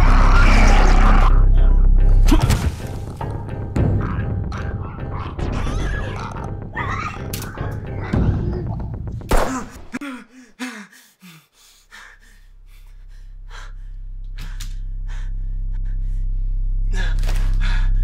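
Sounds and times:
low drone: 12.6s - 18.0s.

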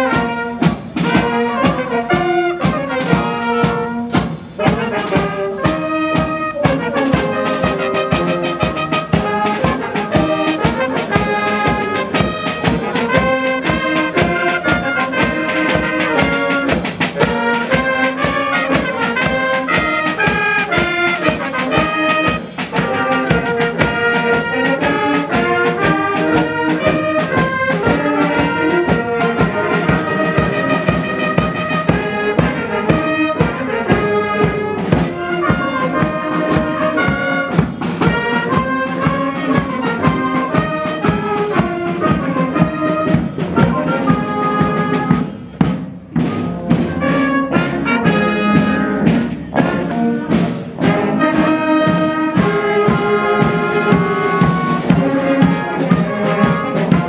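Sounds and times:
brass band playing a march: 0.0s - 57.0s.

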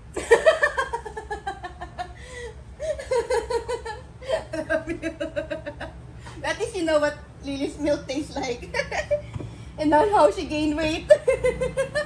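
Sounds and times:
woman laughing: 2.8s - 5.9s, 11.1s - 12.0s.

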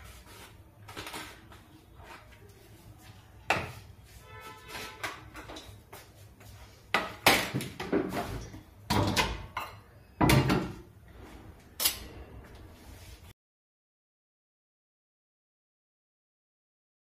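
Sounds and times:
household knocks and clatters: 6.9s - 10.9s.

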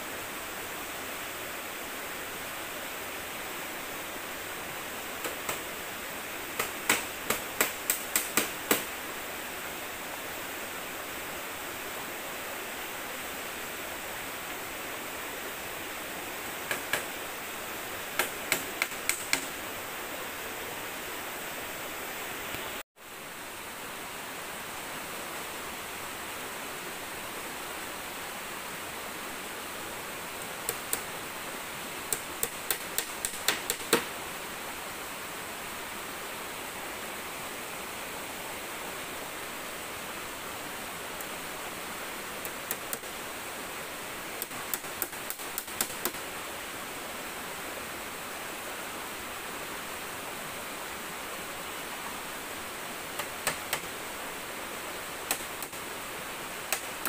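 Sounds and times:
river rushing: 0.0s - 57.0s
bamboo poles clicking and tapping: 5.2s - 5.7s, 6.6s - 8.9s, 16.5s - 17.2s, 18.1s - 19.6s, 30.4s - 31.1s, 32.1s - 34.1s, 42.4s - 43.2s, 44.4s - 46.2s, 53.2s - 54.0s, 55.3s - 55.8s, 56.6s - 57.0s.

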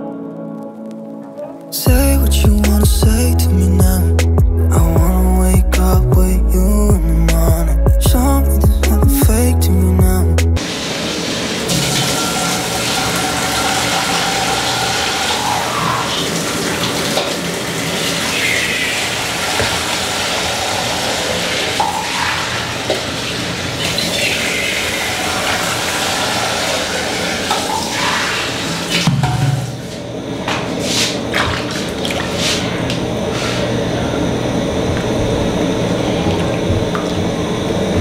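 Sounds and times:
water pouring into metal pot: 10.6s - 29.0s.

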